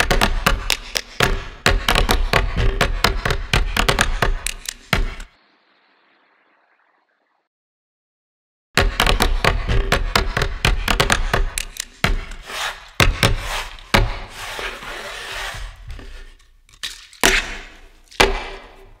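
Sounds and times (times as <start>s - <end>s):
sharp clicks and knocks: 0.0s - 5.3s, 8.9s - 12.4s.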